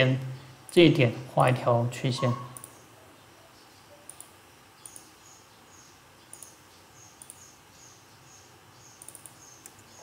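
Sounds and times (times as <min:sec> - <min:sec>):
computer mouse clicking: 0:02.6 - 0:02.8, 0:04.1 - 0:05.1, 0:06.3 - 0:06.6, 0:07.2 - 0:07.5, 0:09.0 - 0:09.9.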